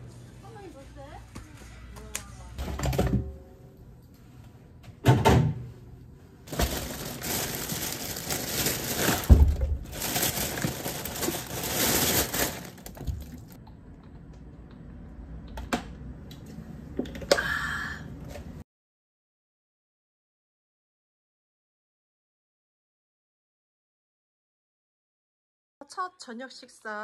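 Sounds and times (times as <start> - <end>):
plastic bag rustling: 6.4 - 13.6.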